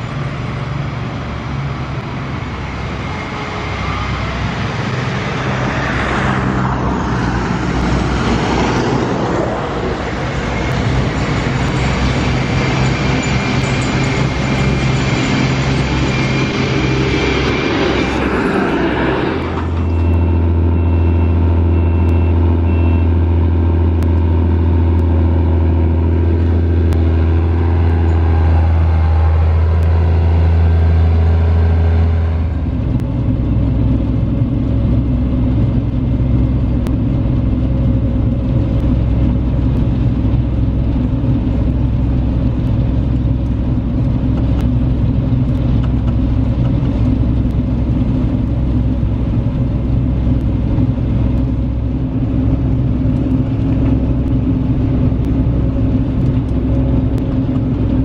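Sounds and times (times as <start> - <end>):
combine harvester engine hum: 0.0 - 58.0
machine whines: 1.4 - 23.2.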